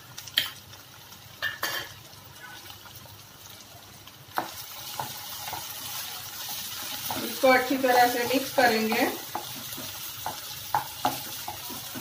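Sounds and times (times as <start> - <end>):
onions sizzling in a pan: 0.0 - 12.0
utensils knocking against pan: 8.3 - 12.0.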